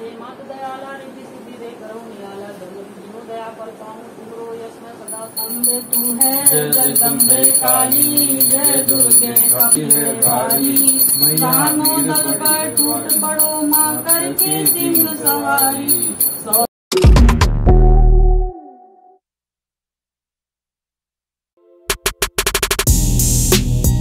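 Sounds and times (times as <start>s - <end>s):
hand bell ringing: 5.1s - 16.7s
person singing devotional song: 5.1s - 16.7s.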